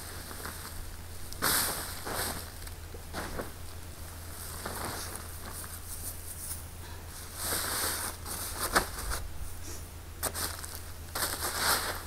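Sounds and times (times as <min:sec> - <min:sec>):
plastic tarp crinkling: 0:10.2 - 0:12.0
potting soil spilling: 0:10.2 - 0:12.0.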